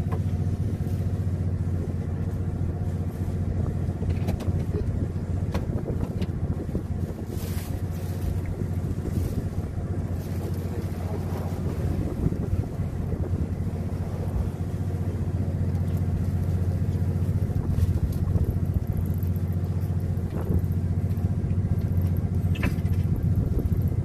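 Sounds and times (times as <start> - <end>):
boat motor humming: 0.0 - 24.0
wind noise: 3.4 - 15.2, 17.3 - 19.3, 20.2 - 20.9, 22.5 - 24.0.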